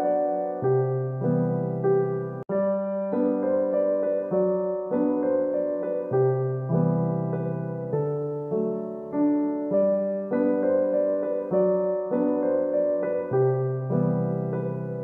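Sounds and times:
gentle piano melody: 0.0 - 15.0.

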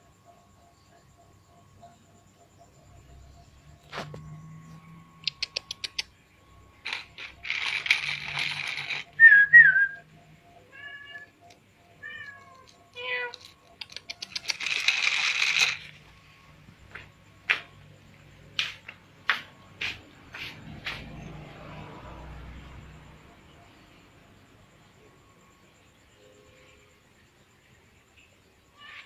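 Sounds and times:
quick run of clicks: 5.2 - 6.1, 6.8 - 9.3, 13.4 - 16.0
cat meowing: 10.7 - 11.3, 12.0 - 13.6, 28.8 - 29.0.

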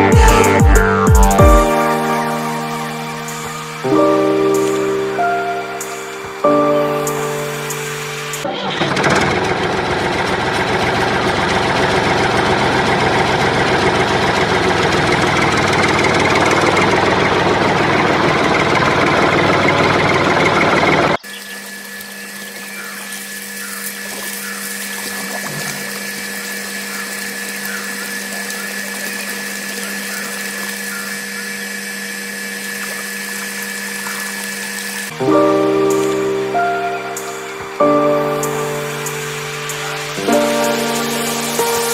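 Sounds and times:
motor hum with high whine: 0.0 - 41.9
toy electric motor rattling: 8.4 - 35.1.

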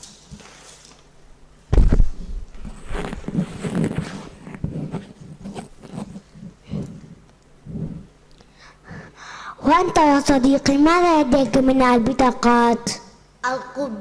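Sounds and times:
paper rustling and crinkling: 0.0 - 1.1, 1.8 - 6.2.

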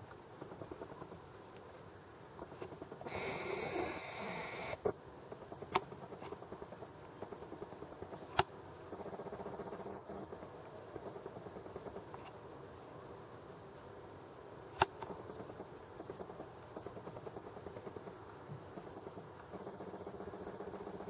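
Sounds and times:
camera zoom motor whirring: 3.1 - 4.9.

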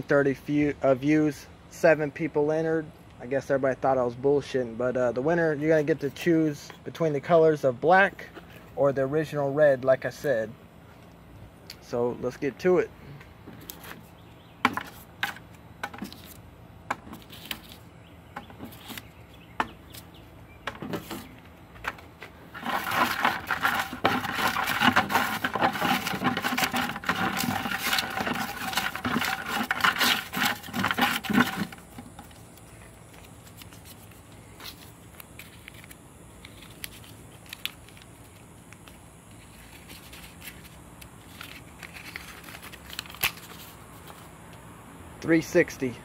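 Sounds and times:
paper rustling and rattling: 13.6 - 16.4, 17.0 - 19.1, 20.7 - 44.3.

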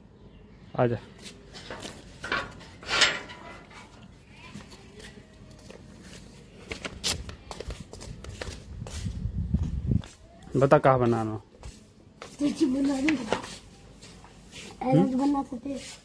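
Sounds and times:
metal gate bolt clanking: 1.7 - 3.9.

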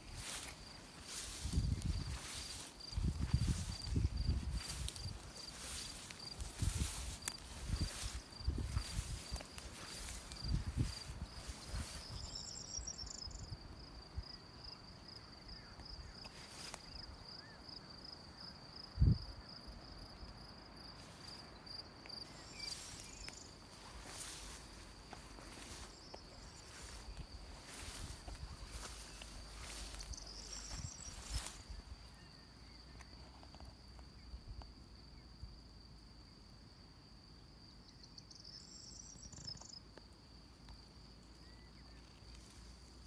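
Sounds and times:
footsteps through grass: 0.0 - 13.2, 16.2 - 17.0, 20.9 - 32.1
insect chirping high-pitched pulses: 0.0 - 20.2, 20.8 - 33.0, 37.8 - 39.8.

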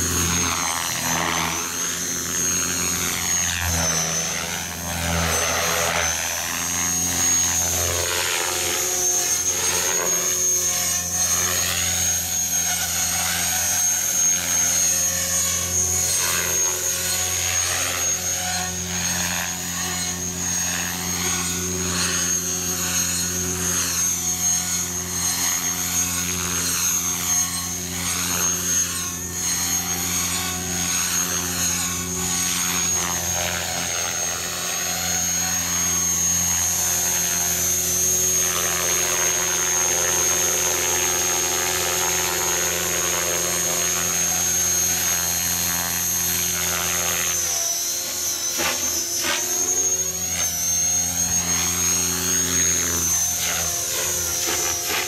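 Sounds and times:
model helicopter high whine: 0.0 - 55.0.

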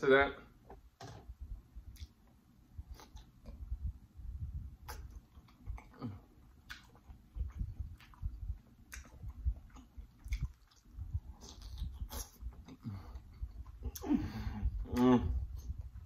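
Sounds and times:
wet chewing: 4.8 - 14.1.

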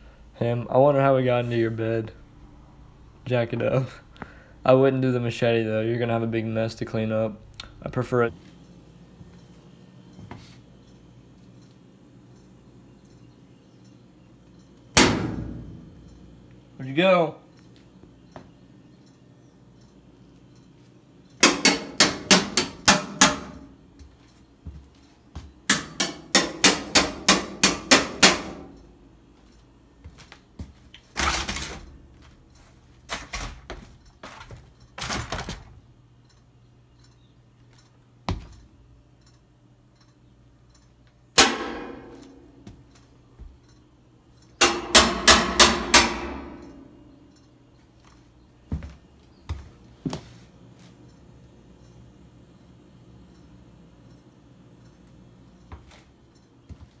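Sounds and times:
banging on sheet metal: 15.0 - 16.0, 21.4 - 23.7, 25.7 - 28.8, 41.4 - 42.7, 44.6 - 47.0.

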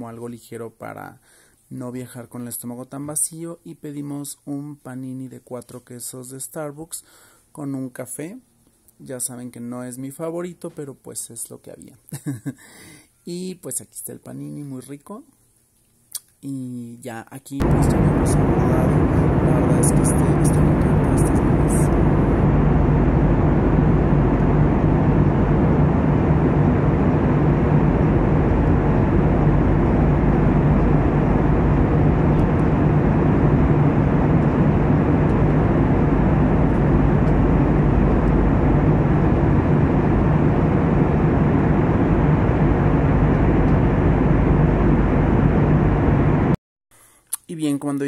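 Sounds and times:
airliner engine and rushing air: 17.6 - 46.6
low hum: 17.6 - 46.6.

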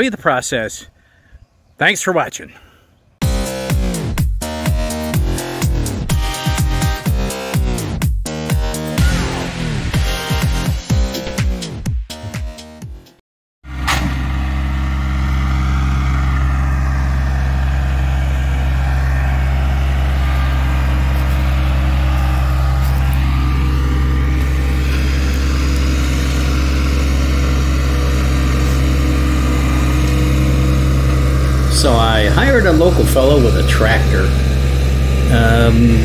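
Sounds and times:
tractor engine running: 3.2 - 11.6, 13.6 - 36.0.

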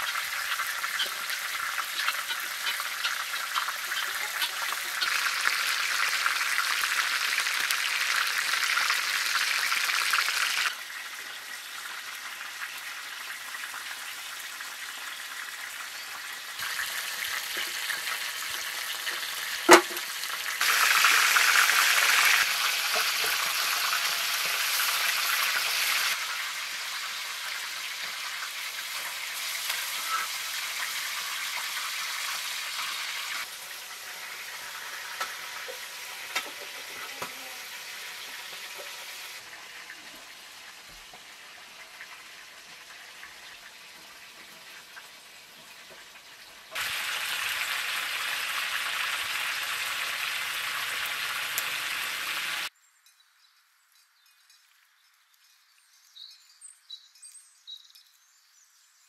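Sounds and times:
chicken sizzling in hot oil: 0.0 - 52.7.

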